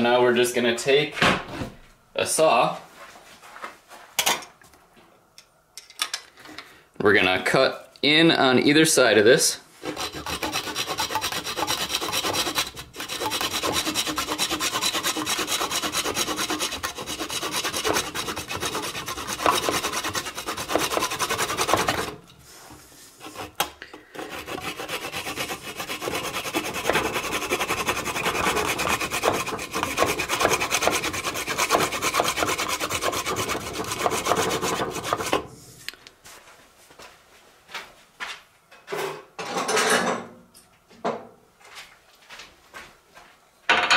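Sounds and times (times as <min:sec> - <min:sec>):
hand saw cutting wood: 0:09.8 - 0:22.2, 0:23.2 - 0:35.5.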